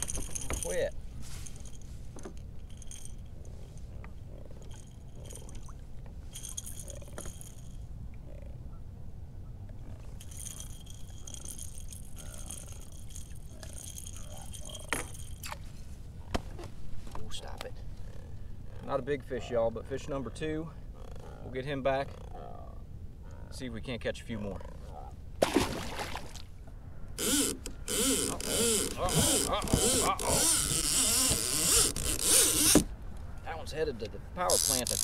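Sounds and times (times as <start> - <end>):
light metallic clinking: 0.0 - 7.8, 10.2 - 15.6
low rumble of wind and water: 0.0 - 35.0.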